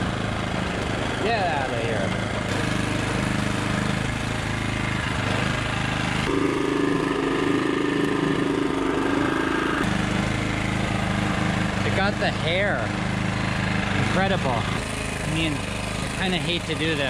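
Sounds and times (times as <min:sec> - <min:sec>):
portable generator running: 0:00.0 - 0:17.0.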